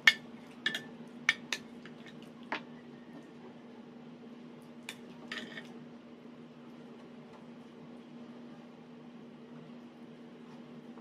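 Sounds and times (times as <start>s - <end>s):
cutlery clinking against plates: 0.0s - 2.6s, 4.9s - 5.7s.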